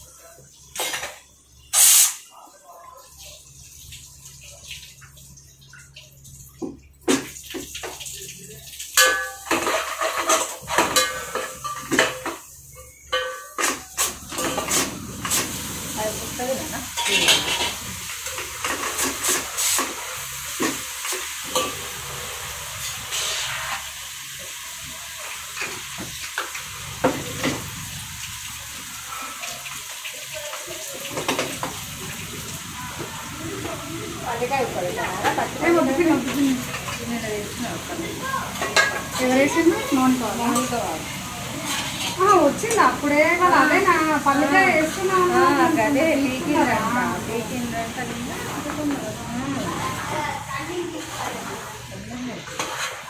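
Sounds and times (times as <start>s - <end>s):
frying hiss: 0.0s - 53.0s
metal spoon scraping pot: 17.0s - 17.8s.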